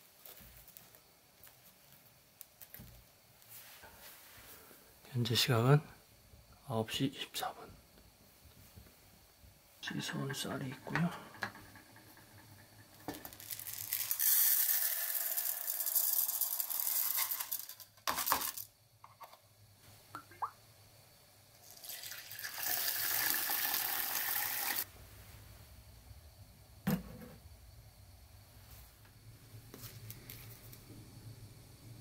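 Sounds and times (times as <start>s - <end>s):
water pouring: 21.6s - 24.8s.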